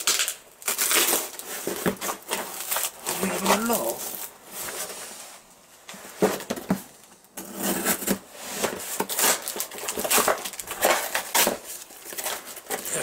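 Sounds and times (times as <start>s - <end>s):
packing tape ripping: 0.0s - 4.3s, 7.4s - 13.0s
cardboard tearing: 0.0s - 5.0s, 7.4s - 13.0s.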